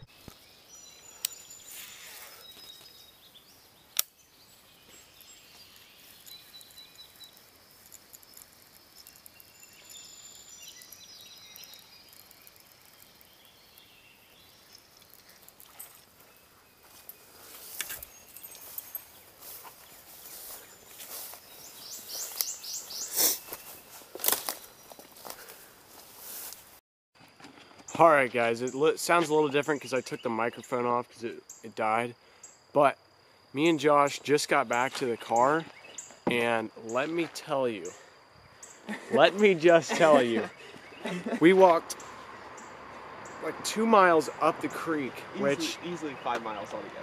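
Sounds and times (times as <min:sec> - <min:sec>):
bird chirps: 0:00.0 - 0:26.4, 0:37.8 - 0:47.0
faint steady hiss: 0:00.0 - 0:26.8, 0:27.9 - 0:47.0
rustling of brush and grass: 0:00.0 - 0:27.9
sharp click: 0:04.0 - 0:04.2.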